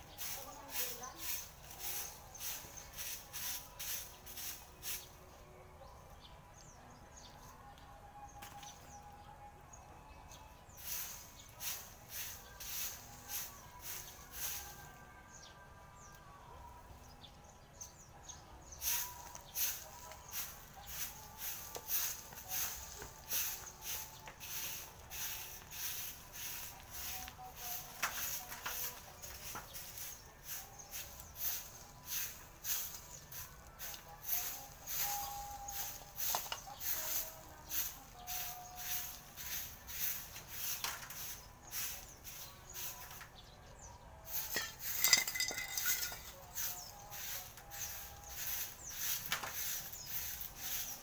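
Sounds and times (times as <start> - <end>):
broom sweeping dry leaves on dirt: 0.0 - 5.4, 8.4 - 9.1, 10.6 - 16.1, 17.0 - 51.0
clinks of swept litter: 0.1 - 5.1, 18.8 - 43.3, 44.3 - 51.0.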